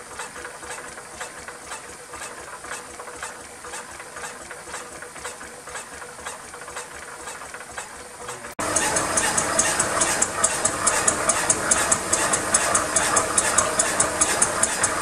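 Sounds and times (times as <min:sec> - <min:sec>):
engine clicks and knocks: 0:00.0 - 0:15.0
compressed air hissing: 0:08.6 - 0:15.0.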